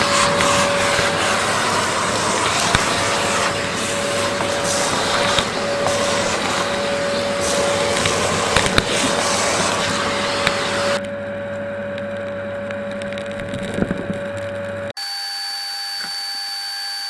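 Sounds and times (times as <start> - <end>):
rush of air: 0.0 - 11.0
vacuum cleaner motor whine: 0.0 - 17.0.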